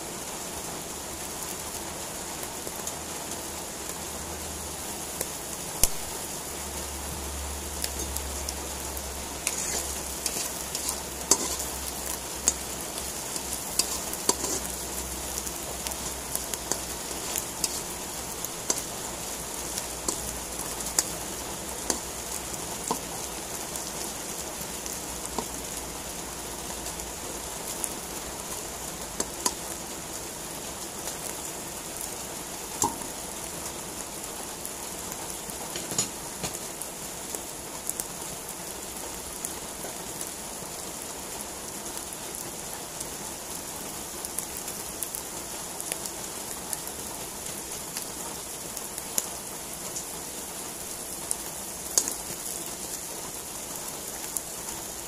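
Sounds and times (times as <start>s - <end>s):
mushrooms sizzling in oil: 0.0s - 55.0s
oil popping: 9.3s - 23.2s.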